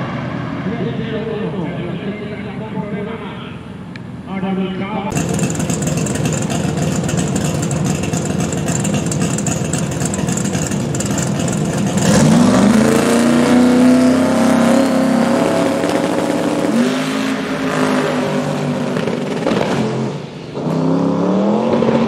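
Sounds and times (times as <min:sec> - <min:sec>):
drag car engine revving: 0:05.1 - 0:22.0.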